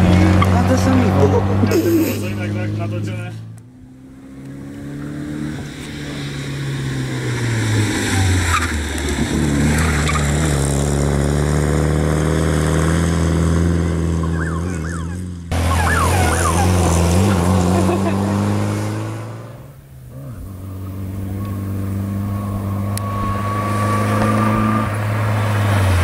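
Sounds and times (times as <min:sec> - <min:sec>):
rally car engine revving high: 0:00.0 - 0:26.0
tyre squeals: 0:14.2 - 0:17.8, 0:20.1 - 0:25.4.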